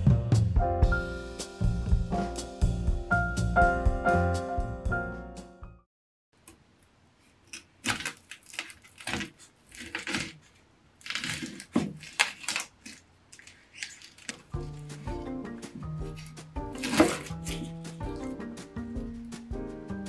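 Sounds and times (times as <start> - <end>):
knife slicing onion on board: 15.7 - 18.5.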